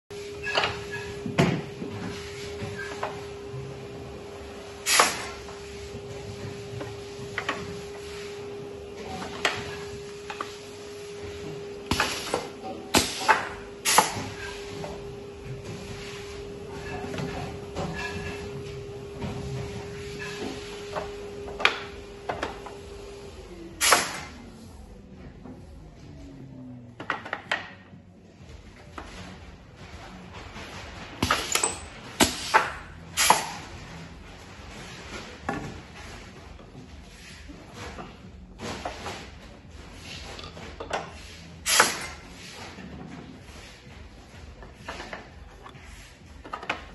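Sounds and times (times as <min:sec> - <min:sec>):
steady machine hum: 0:00.1 - 0:26.8
pneumatic clamps clacking: 0:04.8 - 0:05.5, 0:11.9 - 0:14.7, 0:23.8 - 0:24.3, 0:31.2 - 0:33.6, 0:40.4 - 0:42.2.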